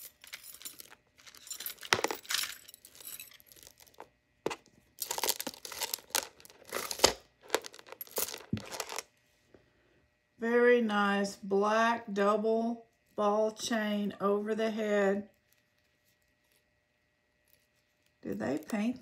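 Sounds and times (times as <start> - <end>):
metal and glass clinks: 0.0 - 4.0, 7.5 - 8.9
jewelry rustling and crinkling: 0.0 - 9.2, 15.2 - 19.0.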